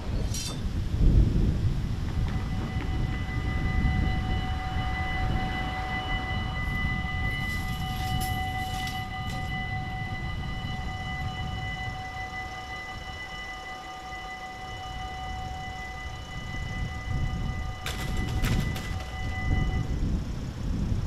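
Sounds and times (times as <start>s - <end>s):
low rumble: 0.0s - 11.6s
level crossing warning bells: 1.7s - 20.0s.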